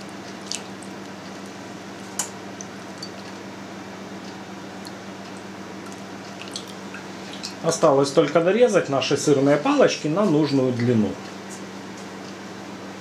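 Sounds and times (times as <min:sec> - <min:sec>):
steady low hum: 0:00.0 - 0:13.0
wet squelches and splashes: 0:00.2 - 0:01.6, 0:04.8 - 0:07.6.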